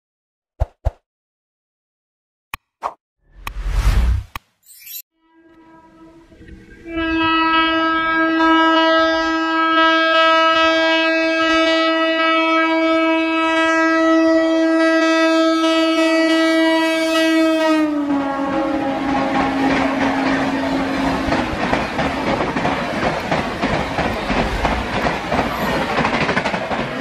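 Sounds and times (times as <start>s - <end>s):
train horn long blast: 5.2s - 22.0s
train rushing past: 18.1s - 27.0s.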